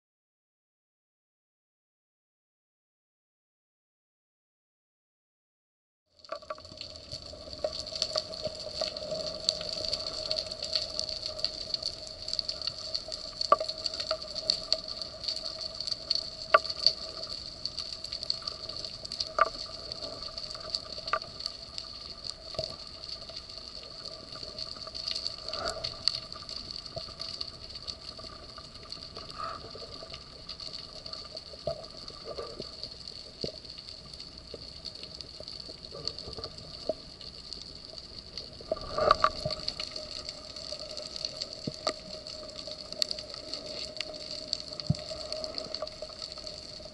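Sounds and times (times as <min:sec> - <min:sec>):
steady underwater hum: 0:06.2 - 0:46.9.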